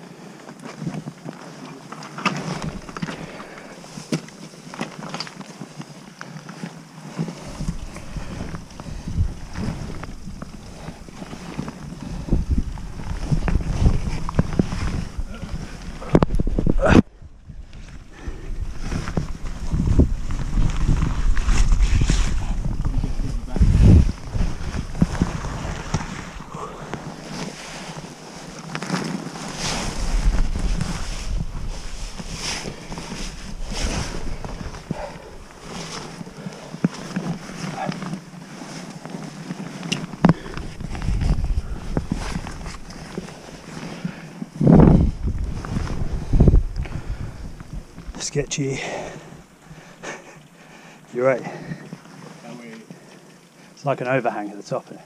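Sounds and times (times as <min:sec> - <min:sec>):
boots and hands scraping on rock: 0:00.5 - 0:17.0, 0:18.5 - 0:50.4
wind buffeting microphone: 0:07.4 - 0:28.5, 0:29.4 - 0:38.3, 0:40.0 - 0:50.0.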